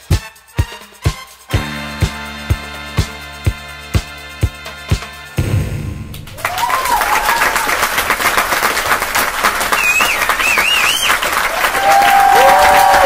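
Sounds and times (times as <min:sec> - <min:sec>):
audience applauding and cheering: 0:06.2 - 0:13.0
whoops: 0:06.4 - 0:07.9, 0:09.8 - 0:13.0
warbling whistle: 0:09.7 - 0:11.3.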